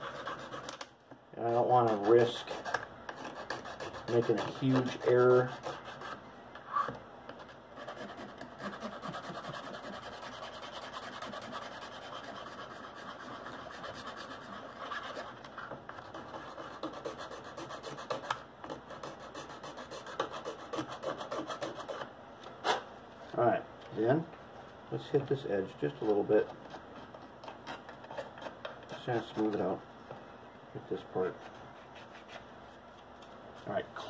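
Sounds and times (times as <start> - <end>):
hand file scraping metal edge: 1.6 - 6.9, 7.8 - 15.3, 16.0 - 22.0.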